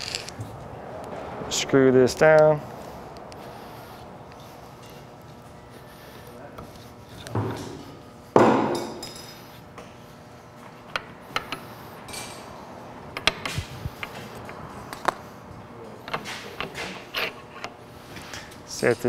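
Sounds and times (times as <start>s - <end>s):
metal tools clanking and clicking: 8.7s - 9.4s.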